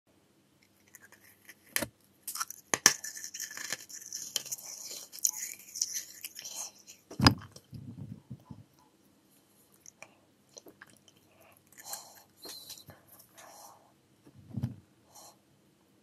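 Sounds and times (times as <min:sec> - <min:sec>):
wet nibbling and sucking: 0:00.6 - 0:08.5, 0:09.6 - 0:13.7
wet mouth clicks: 0:09.8 - 0:13.5.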